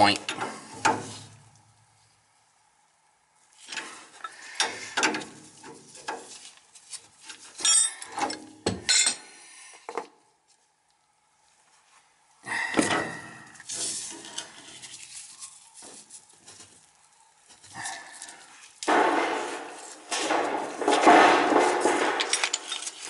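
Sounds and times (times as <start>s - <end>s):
metal wrench clinking and knocking: 7.6s - 8.1s, 8.9s - 9.2s, 21.9s - 23.0s.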